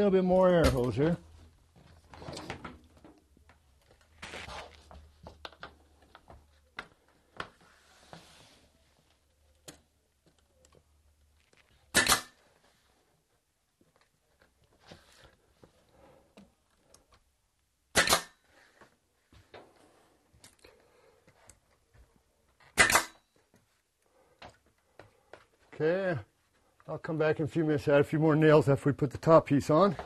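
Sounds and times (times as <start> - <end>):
faint handling noises: 0.3 - 17.4
nail gun firing: 11.9 - 12.4, 17.9 - 18.4, 22.8 - 23.2.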